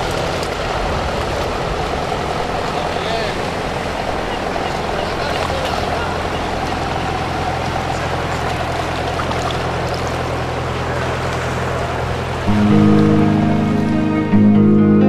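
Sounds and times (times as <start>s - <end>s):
water washing: 0.0s - 14.2s
boat motor droning: 0.0s - 15.0s
music: 12.5s - 15.0s.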